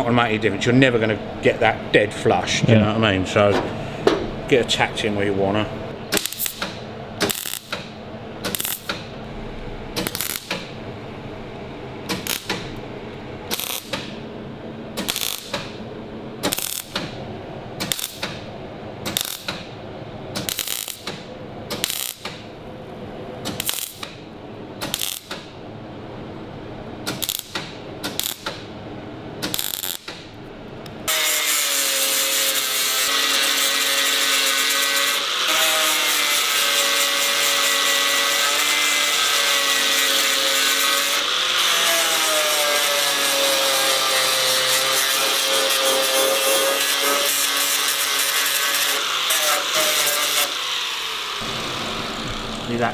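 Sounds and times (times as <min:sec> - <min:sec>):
welder crackling bursts: 0:06.1 - 0:07.8, 0:08.4 - 0:09.0, 0:10.0 - 0:10.6, 0:12.1 - 0:12.6, 0:13.5 - 0:14.1, 0:15.0 - 0:15.7, 0:16.4 - 0:17.0, 0:17.8 - 0:18.4, 0:19.1 - 0:19.6, 0:20.4 - 0:21.2, 0:21.8 - 0:22.4, 0:23.5 - 0:24.1, 0:24.8 - 0:25.4, 0:27.1 - 0:28.5, 0:29.4 - 0:30.1
angle grinder grinding: 0:31.1 - 0:52.9.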